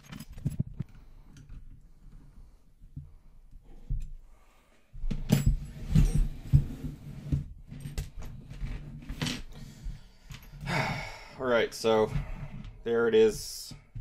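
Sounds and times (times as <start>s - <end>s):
metal clicks and rattles: 0.0s - 1.7s.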